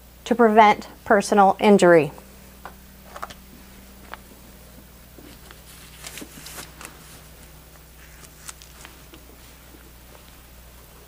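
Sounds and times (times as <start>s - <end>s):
steady low hum: 0.0s - 11.0s
rustles: 5.2s - 10.5s.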